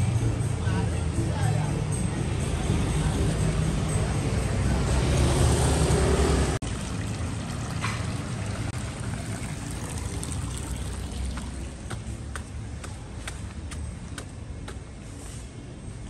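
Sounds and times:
passing vehicle engine rumbling: 0:00.0 - 0:13.2
footsteps on stone steps: 0:11.4 - 0:14.9.

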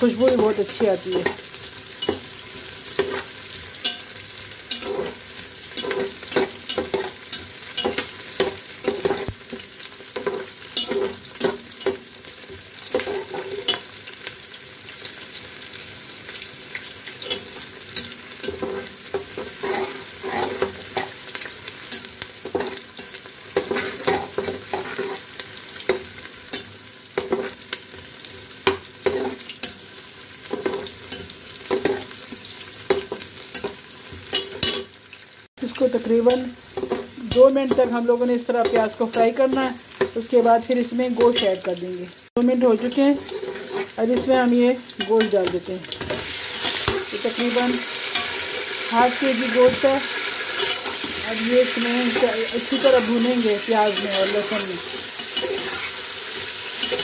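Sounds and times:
onions sizzling in oil: 0:00.0 - 0:57.0
metal spoon scraping a pot: 0:03.0 - 0:09.3, 0:10.2 - 0:12.0, 0:12.9 - 0:13.8, 0:17.2 - 0:21.2, 0:21.9 - 0:25.4, 0:42.8 - 0:44.4, 0:49.6 - 0:51.2, 0:53.9 - 0:56.1.

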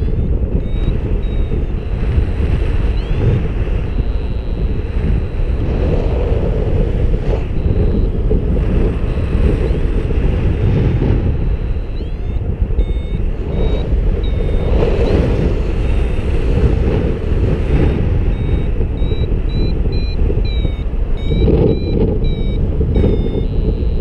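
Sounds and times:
short high beeps and chirps: 0:00.0 - 0:02.2, 0:02.8 - 0:05.7, 0:07.4 - 0:08.3, 0:11.4 - 0:15.5, 0:17.8 - 0:24.0
wind buffeting microphone: 0:00.0 - 0:24.0.

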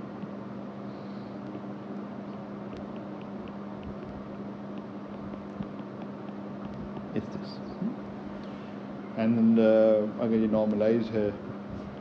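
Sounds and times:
electrical hum with hiss: 0:00.0 - 0:12.0
stylus ticking on tablet: 0:02.7 - 0:07.2.

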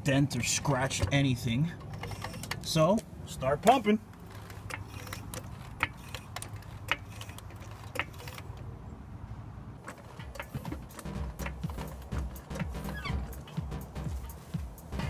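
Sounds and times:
floor jack clicking: 0:09.8 - 0:15.0.

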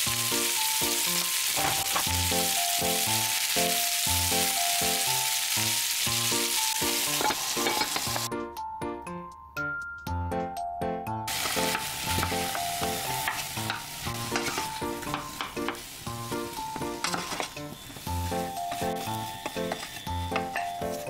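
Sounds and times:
potatoes sizzling in a saucepan: 0:00.0 - 0:08.3, 0:11.3 - 0:21.0
light background music: 0:00.1 - 0:21.0
wooden spatula scraping a pan: 0:13.2 - 0:15.1, 0:16.8 - 0:18.1, 0:18.7 - 0:21.0.

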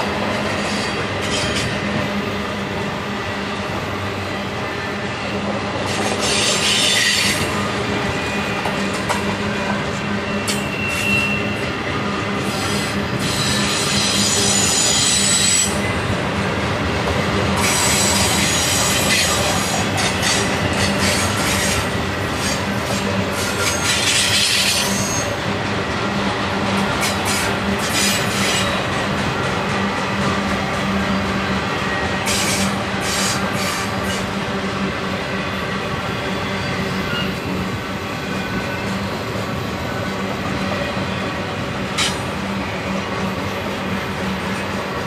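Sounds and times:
freight train rolling past: 0:00.0 - 0:45.0
train wheels squealing: 0:00.4 - 0:02.0, 0:05.8 - 0:16.0, 0:17.6 - 0:25.5, 0:26.8 - 0:30.0, 0:30.8 - 0:34.4, 0:35.4 - 0:44.8.

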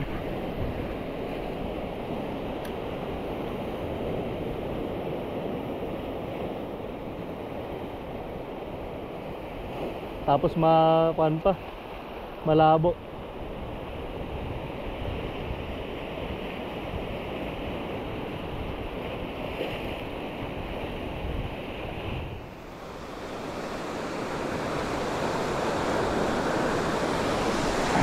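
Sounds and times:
waves breaking on pebbly shore: 0:13.3 - 0:28.0.

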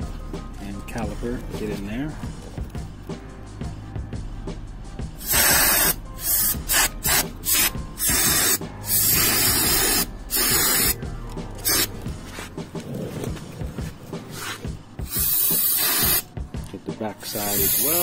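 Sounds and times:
aerosol can spraying hiss: 0:05.2 - 0:11.0, 0:11.6 - 0:12.0, 0:14.3 - 0:16.3, 0:17.2 - 0:18.0.

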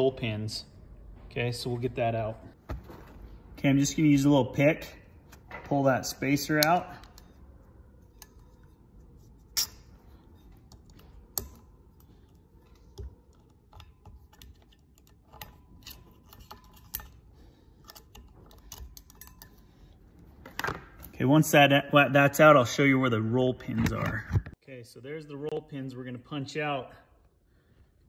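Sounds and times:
metal pick clicking and scraping: 0:06.3 - 0:20.4.

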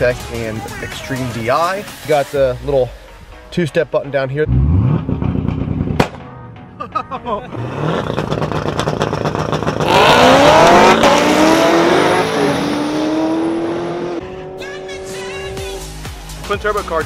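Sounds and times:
car engine revving and accelerating: 0:04.5 - 0:06.0, 0:07.5 - 0:15.9.

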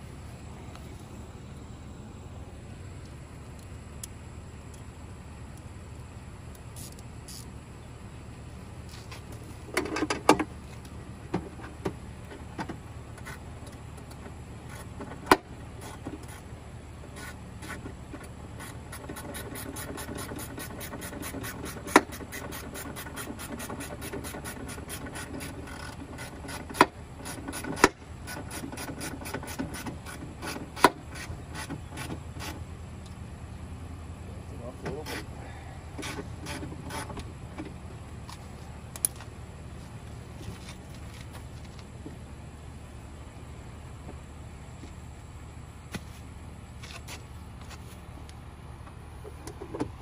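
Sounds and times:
steady low hum: 0:00.0 - 0:50.0
rubbing and scraping: 0:36.0 - 0:37.2.

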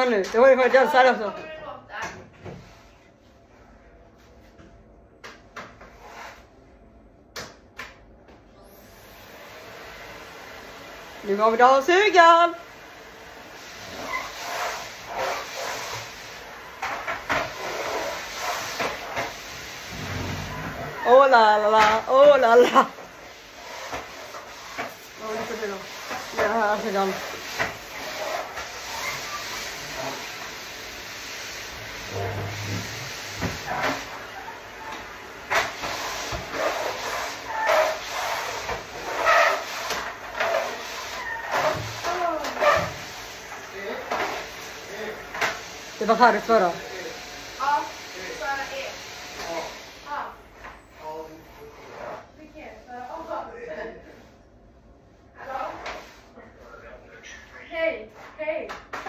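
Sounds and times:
vacuum cleaner running: 0:08.4 - 0:54.2.

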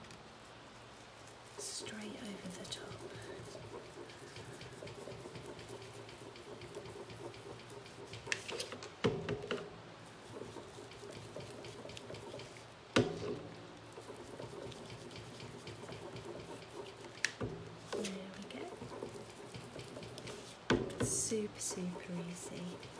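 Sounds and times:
sharp knocks: 0:10.4 - 0:13.5.

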